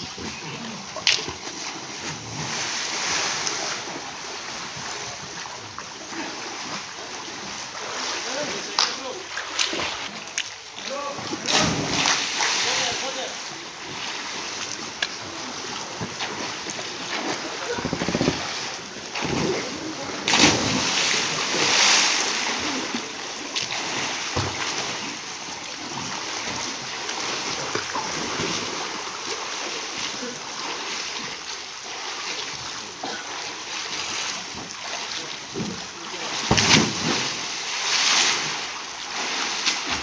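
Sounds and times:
swimmers splashing in pool: 0:00.0 - 0:40.0.

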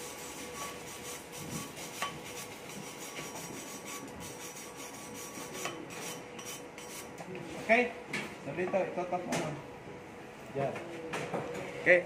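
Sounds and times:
wire brush scrubbing steel: 0:00.0 - 0:07.1.

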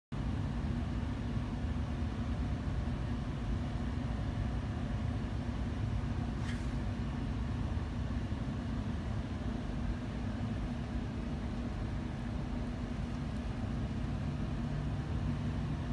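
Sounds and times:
low mechanical hum and rumble: 0:00.1 - 0:15.9
brief hiss: 0:06.3 - 0:07.0.

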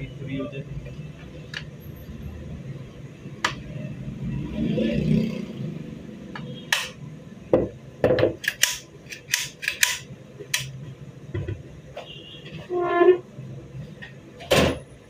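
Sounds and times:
rifle mechanism clacking: 0:08.4 - 0:10.0.

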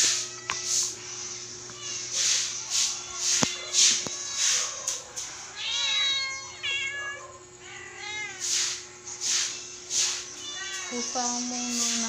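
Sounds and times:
cat meowing: 0:02.9 - 0:08.4, 0:10.4 - 0:11.2.

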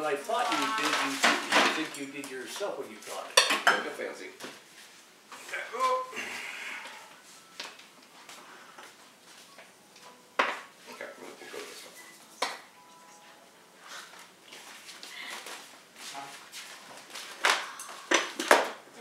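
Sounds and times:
handling cards and envelopes: 0:00.0 - 0:03.2.

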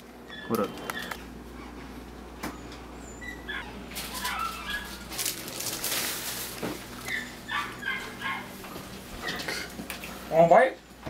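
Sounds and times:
dog whimpering: 0:03.0 - 0:05.0, 0:07.0 - 0:08.5.

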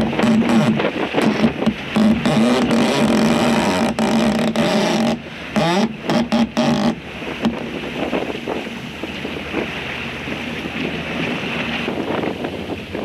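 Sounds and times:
wind buffeting microphone: 0:00.0 - 0:04.0, 0:06.9 - 0:13.0
water splashing along boat hull: 0:00.0 - 0:13.0.

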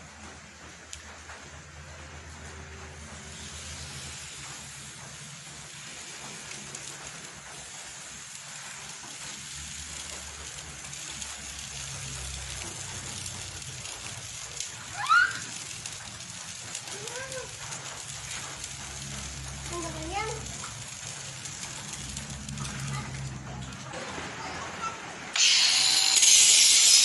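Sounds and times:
hoof searing with steady hiss: 0:01.9 - 0:23.9
loud rising squeal: 0:25.4 - 0:27.0.

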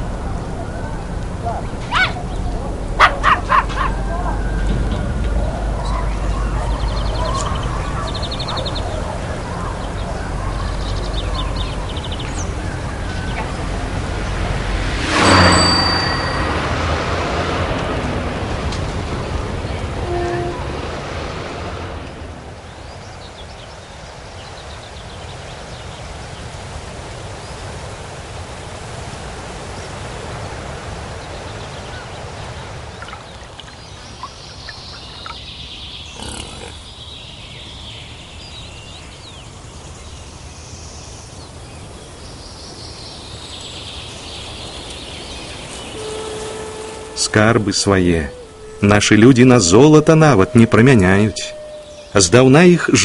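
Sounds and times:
low rumble: 0:00.0 - 0:23.0
birds calling: 0:00.0 - 0:28.2, 0:28.9 - 0:53.0.

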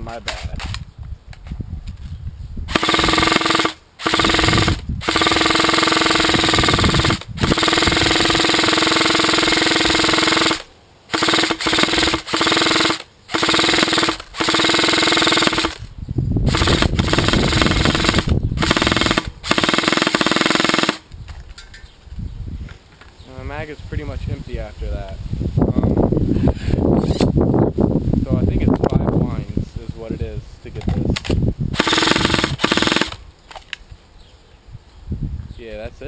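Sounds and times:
airsoft rifle firing bursts: 0:02.7 - 0:15.9, 0:16.5 - 0:21.1, 0:31.8 - 0:33.2.

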